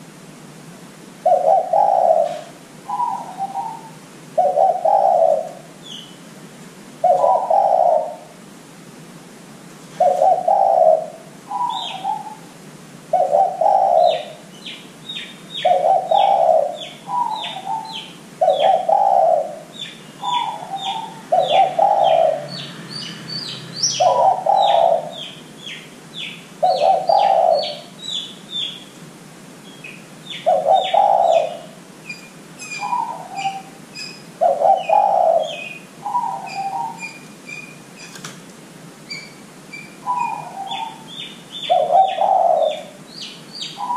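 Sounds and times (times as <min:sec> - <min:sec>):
dove cooing: 0:01.2 - 0:05.8, 0:07.0 - 0:08.4, 0:10.0 - 0:12.5, 0:13.1 - 0:14.5, 0:15.6 - 0:22.7, 0:23.9 - 0:28.0, 0:30.3 - 0:31.9, 0:32.6 - 0:37.7, 0:40.0 - 0:43.0, 0:43.7 - 0:43.9
small birds chirping: 0:01.3 - 0:06.3, 0:09.9 - 0:12.5, 0:13.1 - 0:29.0, 0:29.6 - 0:38.3, 0:39.0 - 0:43.9.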